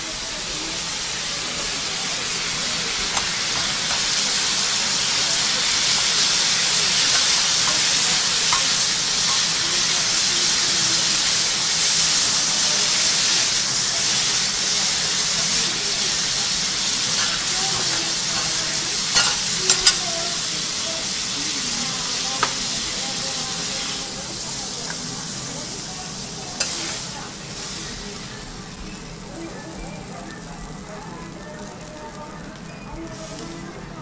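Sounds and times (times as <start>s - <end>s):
food sizzling on griddle: 0.0s - 34.0s
metal spatula clicks: 5.9s - 9.6s, 19.2s - 20.0s.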